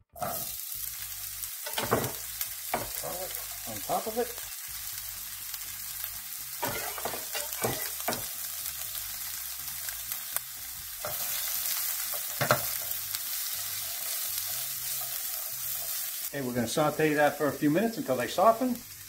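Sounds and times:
onions sizzling in oil: 0:00.0 - 0:19.0
utensils scraping and knocking pan: 0:06.6 - 0:08.3.

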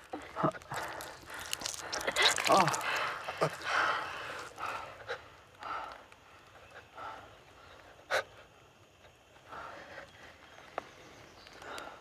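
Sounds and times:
heavy ragged breathing: 0:00.2 - 0:08.4.

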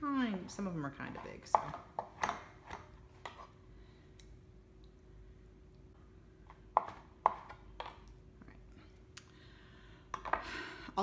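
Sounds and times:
knife chopping on cutting board: 0:06.7 - 0:08.0.

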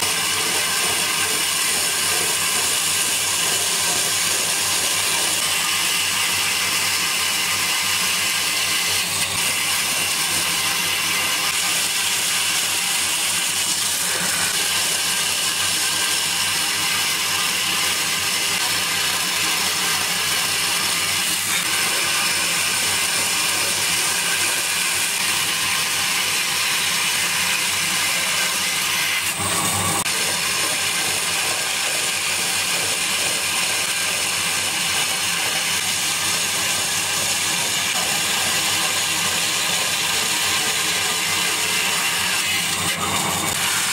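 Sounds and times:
bandsaw cutting wood: 0:00.0 - 0:43.9.

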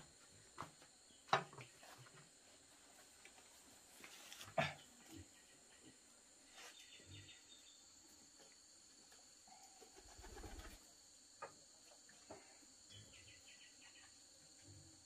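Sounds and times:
soft bird sounds: 0:04.2 - 0:14.7
insect drone: 0:04.6 - 0:15.0.

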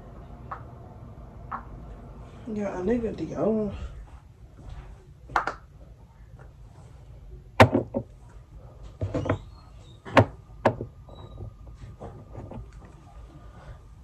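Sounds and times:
knocks and clunks of objects: 0:07.6 - 0:08.2, 0:08.9 - 0:13.0.

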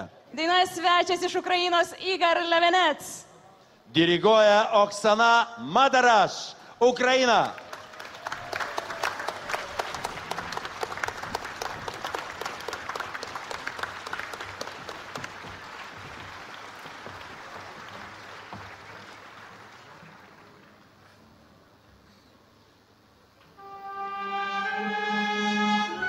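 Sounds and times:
audience applauding: 0:07.2 - 0:21.2.

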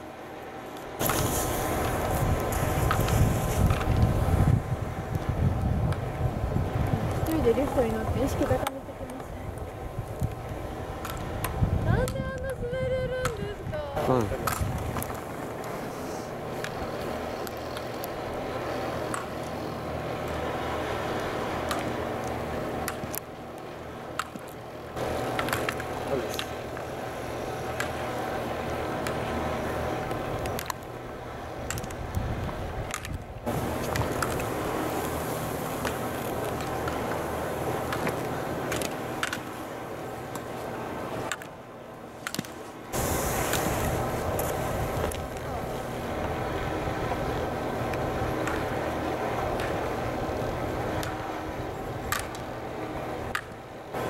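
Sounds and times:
skis scraping on snow: 0:00.6 - 0:06.2, 0:14.0 - 0:19.9, 0:32.8 - 0:41.4, 0:42.1 - 0:53.3
wind on microphone: 0:01.0 - 0:15.4, 0:31.4 - 0:37.9, 0:42.9 - 0:52.2.

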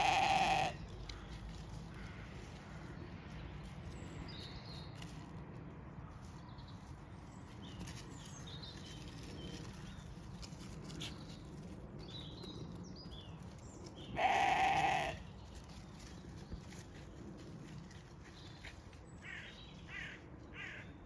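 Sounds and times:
sheep bleating: 0:00.0 - 0:00.8, 0:14.2 - 0:15.2.

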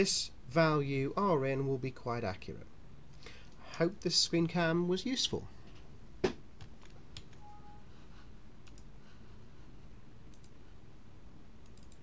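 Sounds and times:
low steady background hum: 0:00.0 - 0:12.0
faint mouse clicks: 0:08.6 - 0:08.9, 0:10.3 - 0:10.6, 0:11.6 - 0:12.0.

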